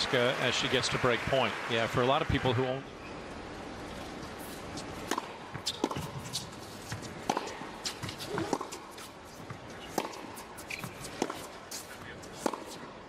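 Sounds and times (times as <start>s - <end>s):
racket strikes: 5.0s - 8.8s
ball bounces: 5.0s - 12.8s
shoe squeaks: 5.6s - 12.4s.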